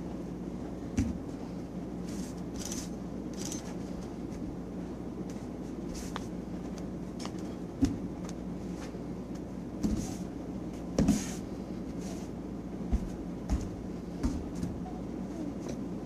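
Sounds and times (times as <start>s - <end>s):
room hum: 0.0s - 16.0s
bare feet thudding on foam mats: 0.9s - 1.3s, 7.7s - 8.3s, 9.8s - 11.5s, 12.8s - 14.8s.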